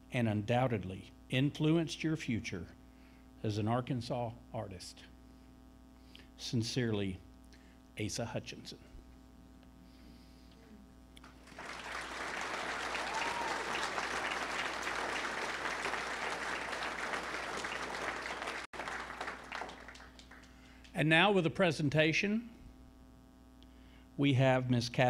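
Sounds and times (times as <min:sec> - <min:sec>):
audience applauding: 0:11.2 - 0:20.9.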